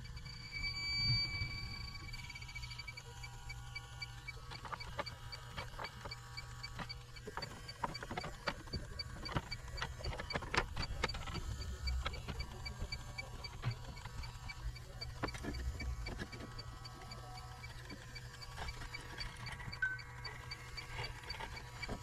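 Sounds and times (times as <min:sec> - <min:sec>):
low hum: 0:00.0 - 0:04.4
leak detector beeping: 0:00.0 - 0:22.0.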